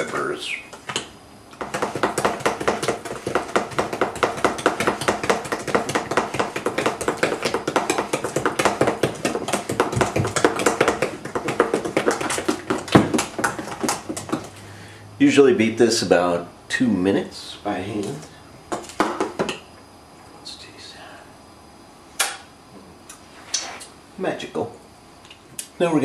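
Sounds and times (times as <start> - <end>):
utensil tapping metal bowl: 1.6 - 14.6.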